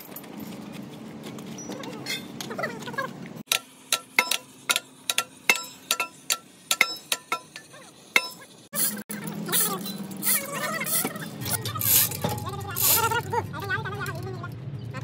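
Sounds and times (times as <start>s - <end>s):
hammer tapping on metal: 3.5s - 7.6s.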